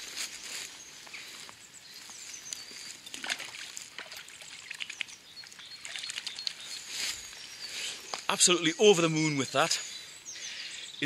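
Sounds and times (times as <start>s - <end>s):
river water splashing and trickling: 2.8s - 7.0s.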